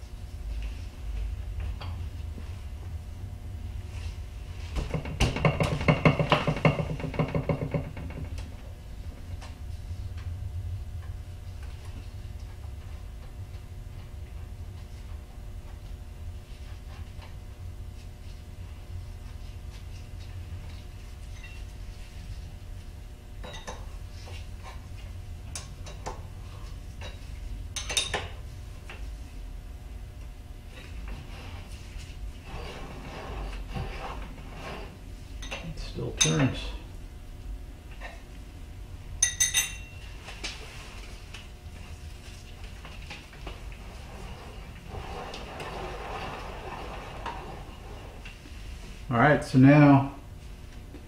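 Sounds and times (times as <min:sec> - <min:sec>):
low steady hum: 0:00.0 - 0:51.0
hand tool clinking on metal: 0:39.2 - 0:40.0.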